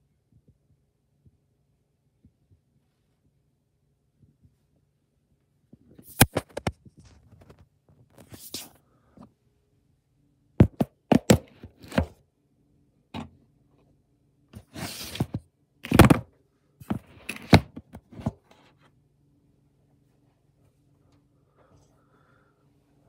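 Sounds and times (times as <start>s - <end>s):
phone handling knocks and thumps: 10.6s - 12.2s.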